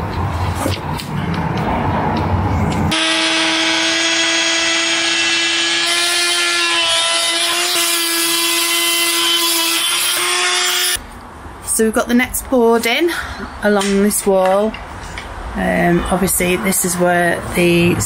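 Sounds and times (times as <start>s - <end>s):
oscillating multi-tool cutting plywood: 2.9s - 11.0s.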